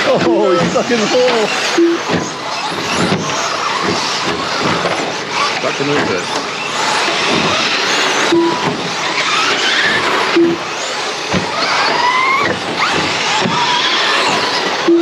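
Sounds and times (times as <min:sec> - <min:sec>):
electric motors whining: 0:00.0 - 0:15.0
tyre and track noise: 0:00.0 - 0:15.0
short low beep: 0:01.8 - 0:02.0, 0:08.3 - 0:08.6, 0:10.4 - 0:10.6.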